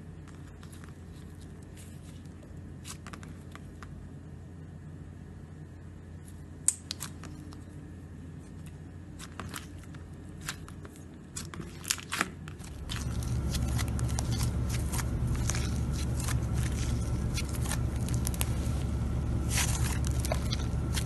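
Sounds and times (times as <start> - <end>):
hands squeezing slime: 9.2 - 21.0
low hum: 12.6 - 21.0.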